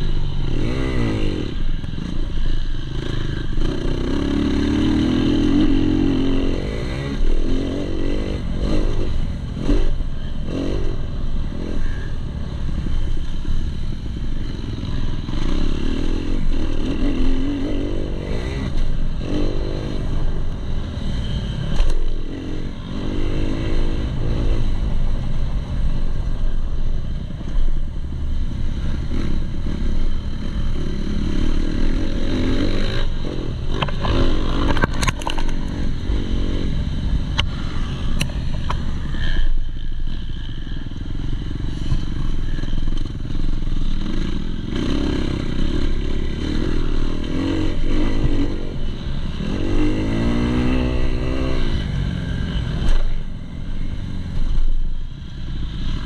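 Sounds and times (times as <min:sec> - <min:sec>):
motorcycle engine revving: 0:00.0 - 0:26.5, 0:27.6 - 0:56.0
sharp clicks and rattles: 0:33.8 - 0:35.8.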